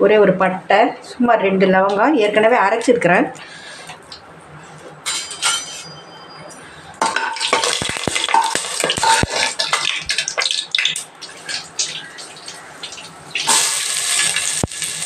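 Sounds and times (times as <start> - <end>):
metal spatula scraping pan: 4.6 - 6.4, 7.5 - 9.9
onions sizzling in hot oil: 7.1 - 15.0.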